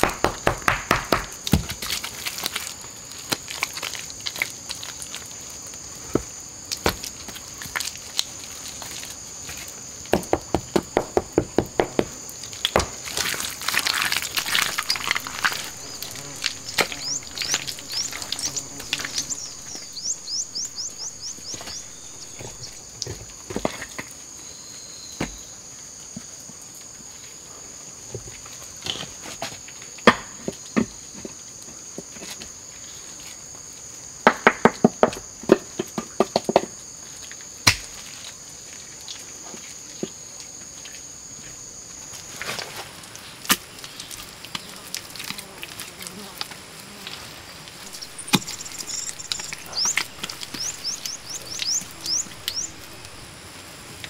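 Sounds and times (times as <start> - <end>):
insects humming: 0.0 - 54.0
hands patting wet clay: 6.2 - 22.8.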